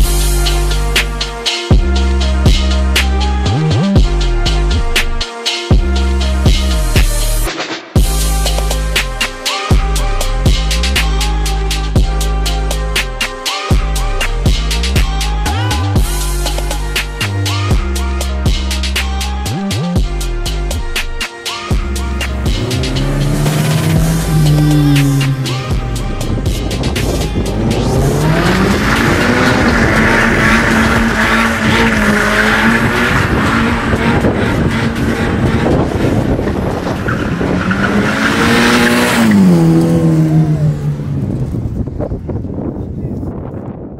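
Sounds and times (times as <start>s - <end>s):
steady drum beat: 0.0s - 3.1s, 20.0s - 36.4s
deep bass line: 0.0s - 13.2s, 13.8s - 42.9s
car engine revving high: 21.8s - 42.0s.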